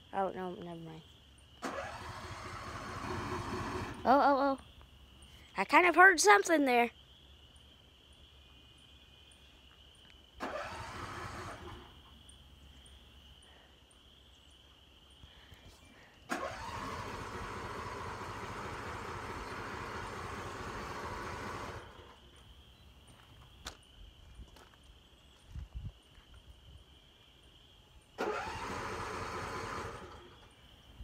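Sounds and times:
lawn mower engine cranking: 1.6s - 4.1s, 10.4s - 12.0s, 16.3s - 22.2s, 28.2s - 30.5s.

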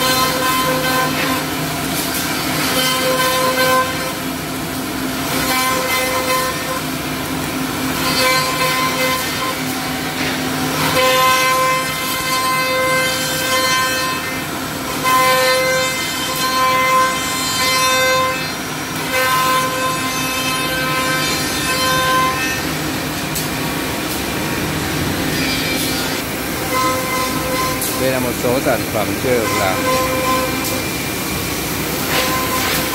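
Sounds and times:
wood cutting rasp: 26.8s - 30.7s.

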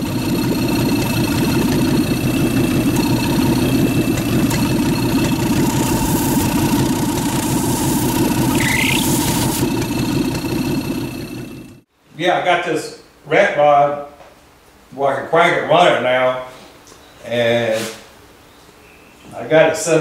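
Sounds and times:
car engine idling: 0.0s - 11.9s
rising squeal: 1.1s - 11.5s.

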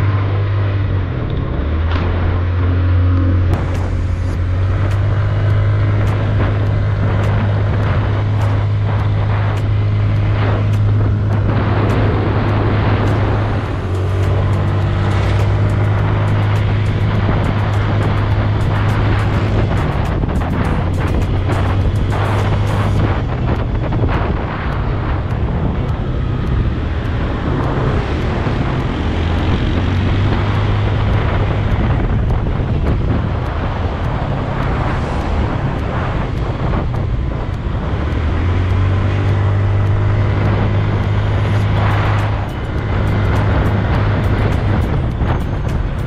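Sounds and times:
scooter engine running: 0.0s - 46.0s
wind and road noise: 0.0s - 46.0s.

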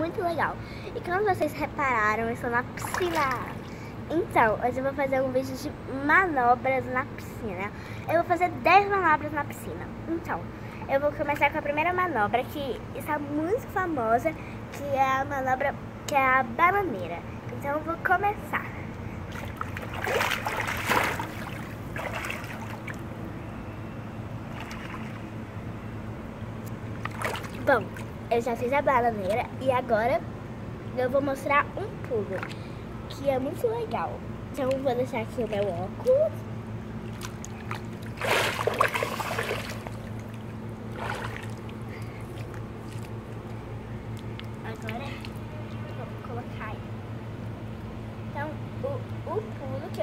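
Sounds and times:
steady low hum: 0.0s - 50.0s
pool water splashing: 2.6s - 3.8s, 19.2s - 23.4s, 24.4s - 25.5s, 26.7s - 28.3s, 36.9s - 43.6s
water sloshing and lapping: 2.6s - 4.0s, 19.1s - 23.3s, 24.4s - 25.5s, 26.6s - 28.3s, 32.1s - 32.7s, 37.0s - 46.0s.

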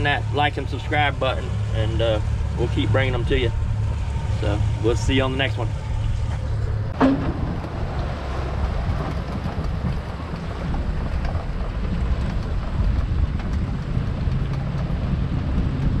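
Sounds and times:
road noise: 0.0s - 16.0s
vehicle engine rumble: 0.0s - 16.0s.

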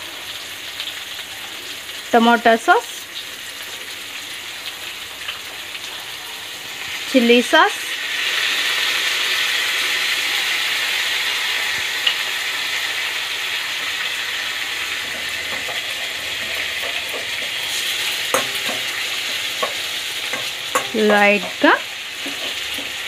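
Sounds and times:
chicken sizzling in hot oil: 0.0s - 23.0s
metal spatula tapping pan: 15.0s - 23.0s.

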